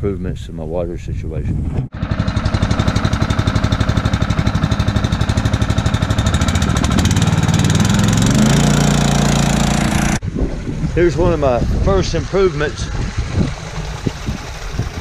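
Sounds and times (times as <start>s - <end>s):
small water pump engine running: 1.9s - 10.2s, 11.9s - 15.0s.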